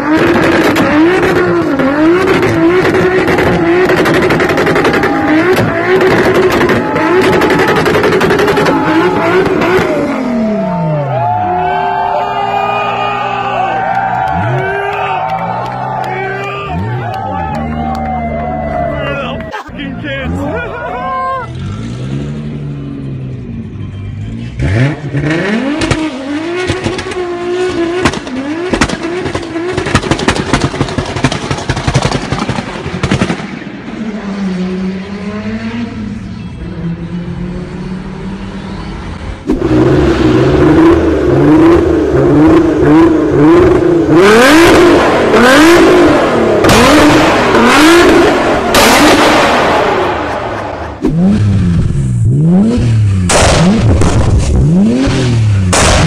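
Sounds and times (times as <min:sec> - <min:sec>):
car exhaust revving and popping: 0:00.0 - 0:10.6, 0:24.5 - 0:36.0, 0:38.8 - 0:56.0
loud backfire bangs: 0:00.2 - 0:10.1, 0:28.0 - 0:33.9, 0:44.7 - 0:51.5, 0:53.2 - 0:56.0.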